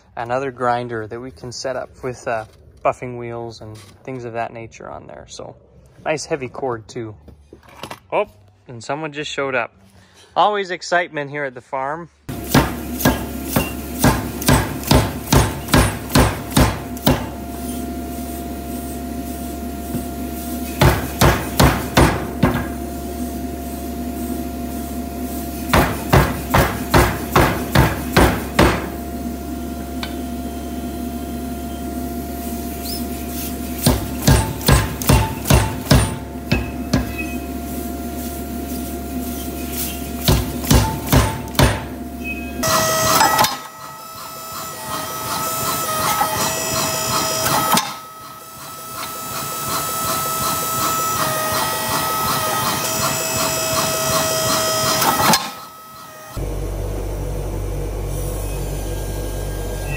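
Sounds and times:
power hammer blows: 12.3 - 17.4, 20.7 - 22.8, 25.7 - 29.0, 33.8 - 37.4, 42.6 - 48.1
machine hum: 12.3 - 59.9.

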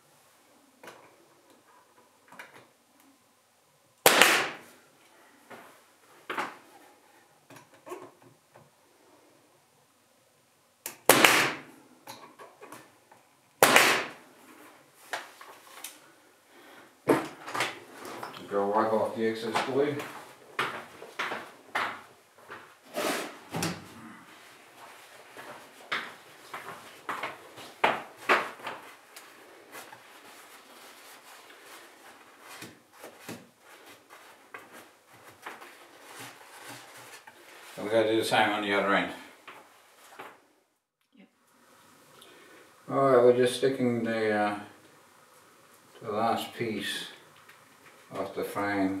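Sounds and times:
pneumatic nailer shots with hiss: 4.0 - 4.7, 11.0 - 11.7, 13.6 - 14.2.

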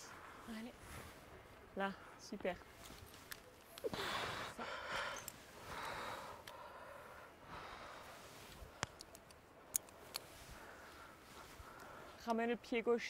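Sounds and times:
person breathing hard: 3.9 - 8.8
sharp clicks: 8.6 - 10.3.

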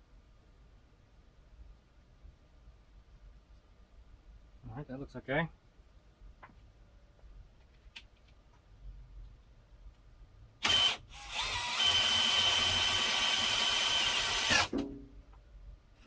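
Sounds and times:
rotary cutter motor whining: 10.6 - 14.7.

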